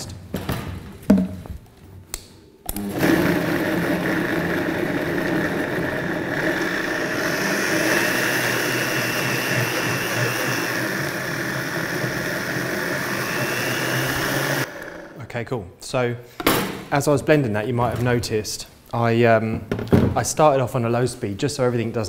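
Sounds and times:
blender motor running: 0:02.7 - 0:15.2.

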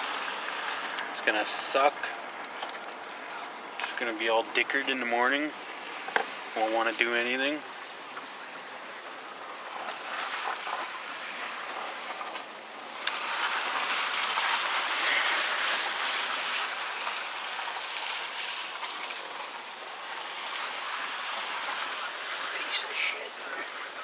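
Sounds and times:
tyres hissing through slush: 0:09.7 - 0:12.2, 0:12.8 - 0:24.0.

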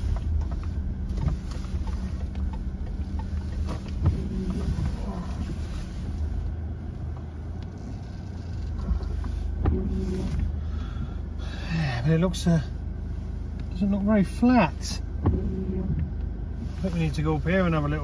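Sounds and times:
car engine and road rumble: 0:00.0 - 0:18.0.

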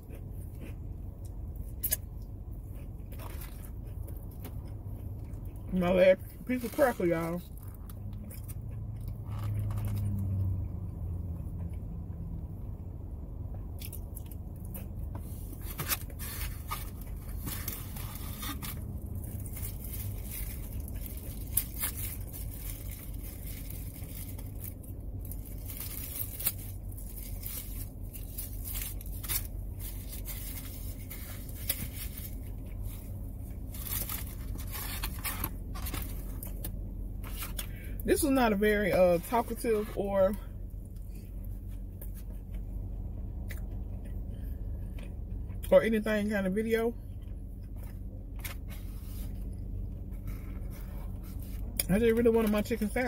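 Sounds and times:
chewing crunchy crackers: 0:00.0 - 0:10.7, 0:13.5 - 0:37.7
steady low hum: 0:00.0 - 0:53.0
plastic packaging crinkling: 0:15.9 - 0:36.6.

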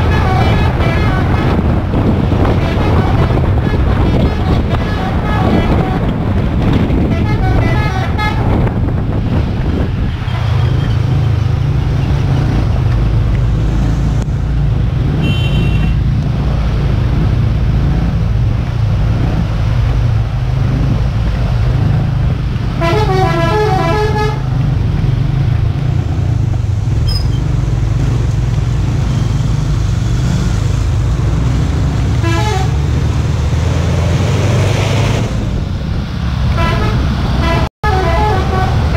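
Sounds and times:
musical bus horn: 0:00.0 - 0:01.8, 0:02.5 - 0:06.2, 0:07.0 - 0:08.6, 0:15.2 - 0:16.0, 0:22.8 - 0:24.5, 0:32.2 - 0:32.8, 0:36.5 - 0:38.9
bus engine droning: 0:00.0 - 0:38.9
road and wind noise: 0:00.0 - 0:38.9.

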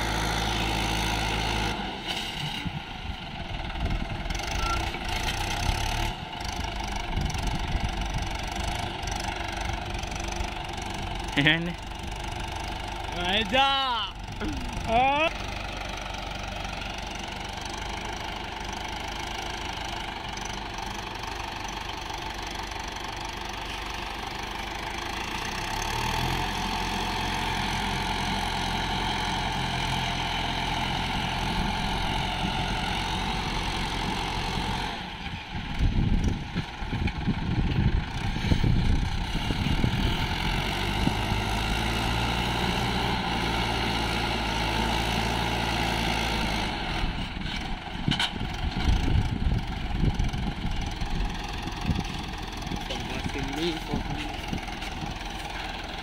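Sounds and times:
tractor diesel engine under load: 0:00.0 - 0:56.0
irregular low buffeting: 0:47.0 - 0:56.0.

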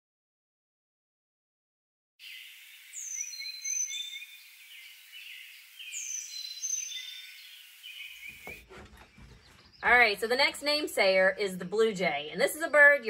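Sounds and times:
bird whistled song: 0:02.2 - 0:08.6
soft bird chirps: 0:02.2 - 0:13.0.

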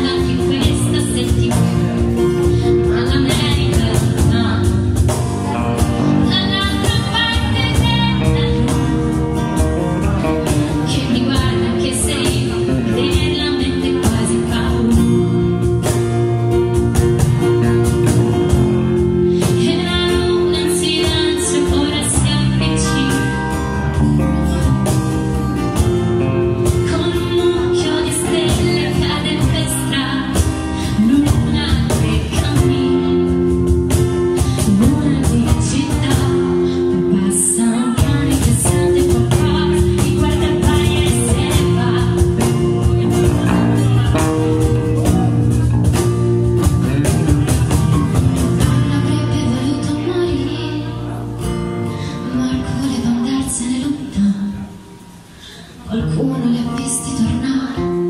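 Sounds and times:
woman singing into a microphone: 0:00.0 - 0:05.4, 0:06.0 - 0:09.6, 0:10.4 - 0:16.0, 0:17.4 - 0:23.8, 0:26.6 - 0:46.0, 0:48.1 - 0:51.2, 0:51.9 - 0:58.0
band with percussion: 0:00.0 - 0:53.6.

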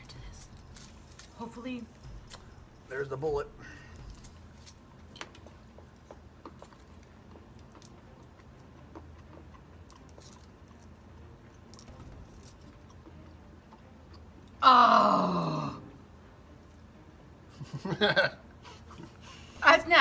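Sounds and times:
man chewing crunchy chocolate: 0:03.9 - 0:14.6.

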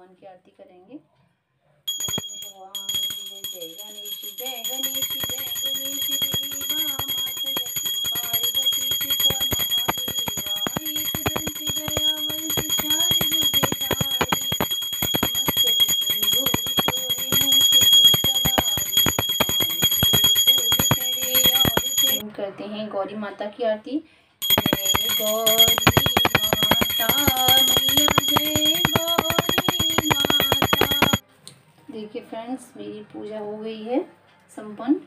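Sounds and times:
small hand bell ringing rapidly: 0:01.9 - 0:22.2, 0:24.4 - 0:31.2.

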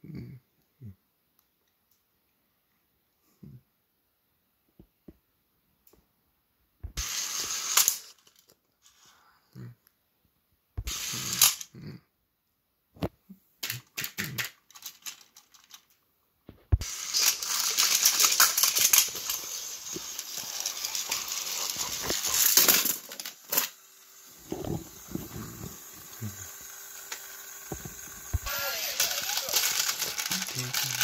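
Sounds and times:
plastic toy trains clattering: 0:07.0 - 0:09.0, 0:11.0 - 0:11.7, 0:13.6 - 0:16.0, 0:16.8 - 0:31.0.

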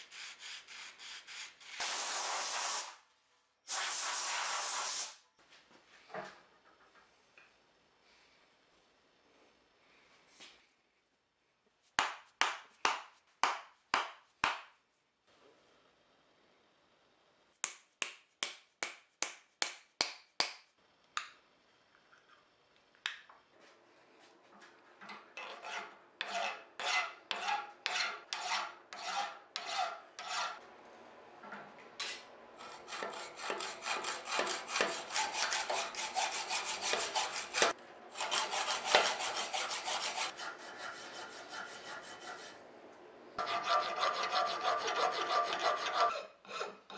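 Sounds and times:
hand file scraping steel: 0:00.0 - 0:01.8, 0:25.4 - 0:30.6, 0:32.6 - 0:42.6, 0:43.4 - 0:46.9.

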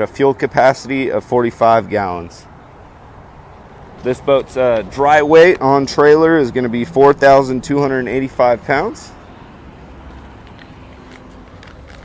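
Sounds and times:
faint footsteps: 0:10.0 - 0:12.0.

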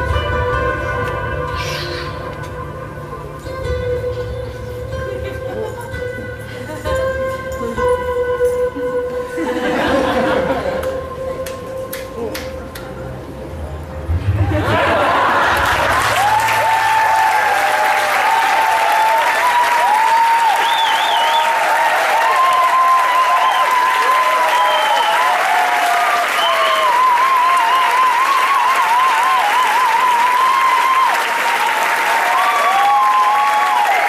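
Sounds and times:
audience applauding: 0:14.6 - 0:34.0
high cheers or whistles: 0:15.9 - 0:34.0.

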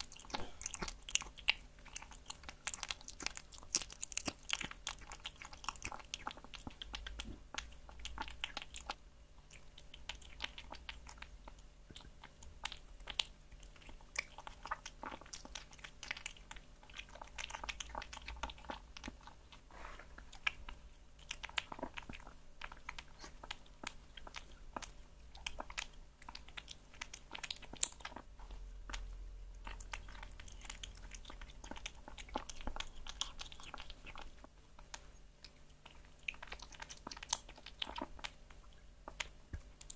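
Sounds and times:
kitten chewing raw meat: 0:00.0 - 0:39.9.

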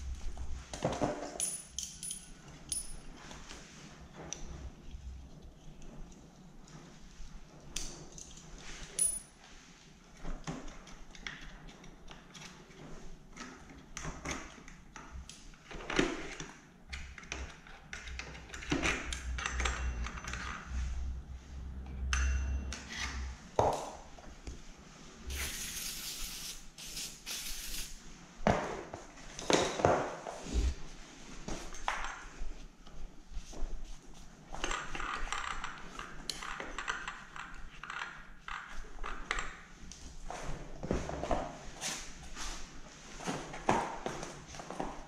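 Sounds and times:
metal tool clinking and scraping: 0:01.3 - 0:03.1, 0:19.2 - 0:20.8, 0:22.0 - 0:23.4
aerosol can spraying: 0:25.3 - 0:28.0.

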